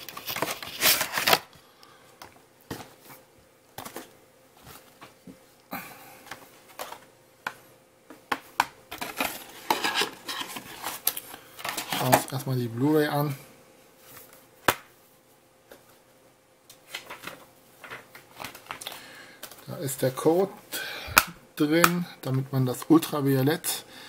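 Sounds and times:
cardboard packaging rustling: 0:00.0 - 0:01.6, 0:08.9 - 0:12.4
plastic blister pack crinkling: 0:00.0 - 0:01.6.

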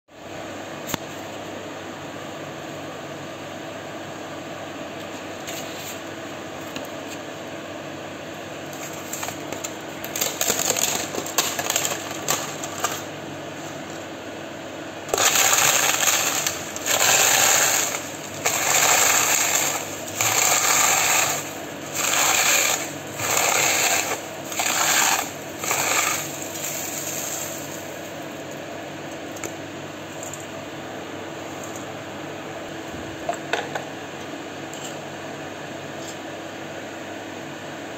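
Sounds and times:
steady background hum: 0:00.1 - 0:37.9
papad crunching in a steel bowl: 0:08.8 - 0:13.1, 0:15.1 - 0:28.4.

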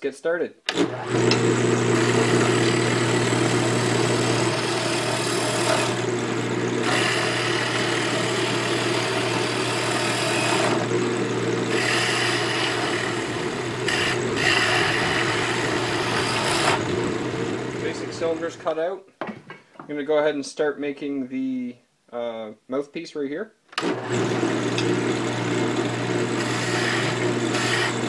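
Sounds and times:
lathe motor hum: 0:00.7 - 0:18.2, 0:23.8 - 0:28.0
chisel scraping spinning wood: 0:01.0 - 0:18.4, 0:24.6 - 0:28.0.

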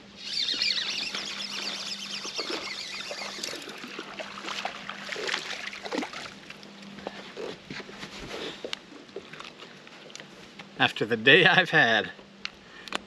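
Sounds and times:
steady low hum: 0:00.0 - 0:13.0
water lapping against boat hull: 0:00.5 - 0:06.7.

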